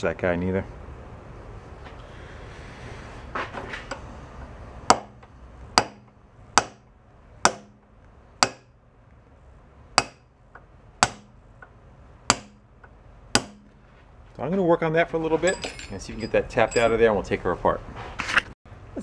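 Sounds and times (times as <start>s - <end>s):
hammer tapping metal punch: 4.9s - 8.7s, 10.0s - 13.8s.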